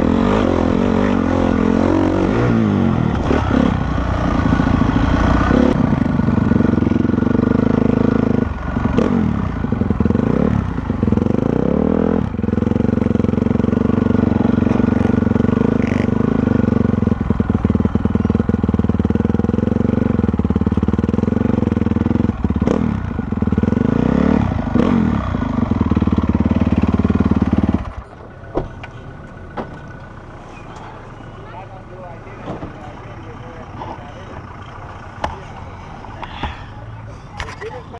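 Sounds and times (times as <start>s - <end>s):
motocross engine revving: 0.0s - 28.1s.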